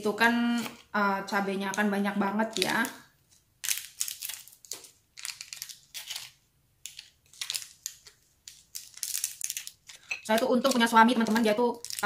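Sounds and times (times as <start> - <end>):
plastic crinkling: 2.4 - 12.0.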